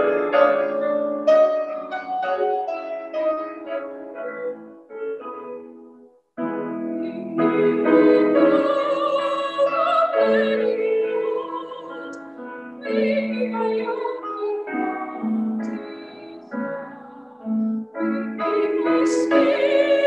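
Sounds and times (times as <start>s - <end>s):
piano accompaniment: 0.0s - 20.0s
woman singing a hymn: 7.0s - 12.2s, 12.8s - 20.0s.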